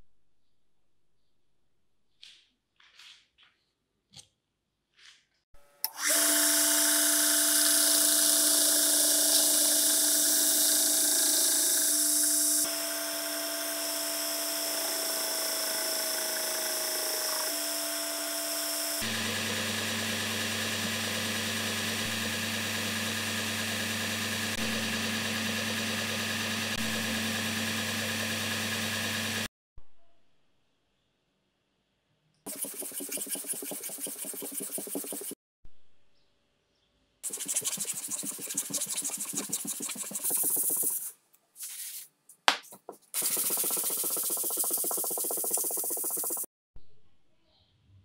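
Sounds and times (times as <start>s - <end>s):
belt grinder grinding steel blade: 5.8s - 13.8s.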